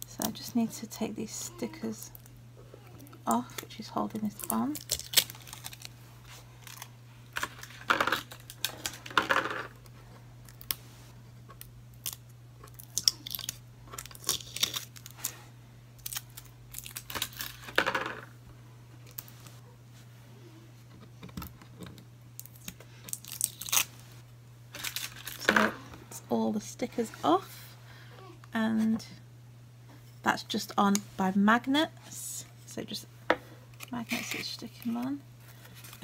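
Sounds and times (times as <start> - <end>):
stickers being peeled off: 3.4 - 5.9, 22.4 - 23.9.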